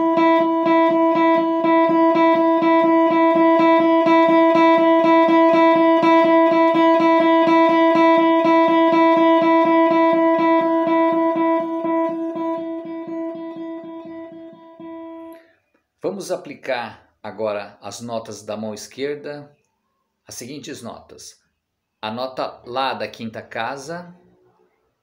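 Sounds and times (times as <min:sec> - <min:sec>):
electric guitar picking one note: 0:00.0 - 0:15.4.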